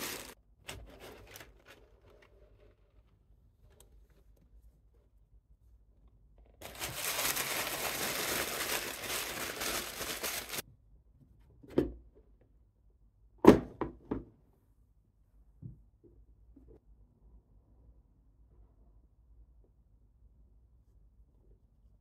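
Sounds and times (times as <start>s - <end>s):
tissue paper crinkling: 0.0s - 2.3s, 6.6s - 10.6s.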